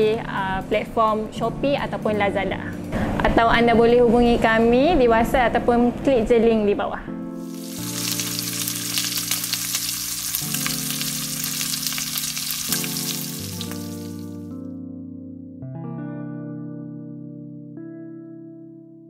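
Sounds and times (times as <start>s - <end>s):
music of sustained notes: 7.0s - 19.0s
oil sizzling in a deep fryer: 7.4s - 14.5s.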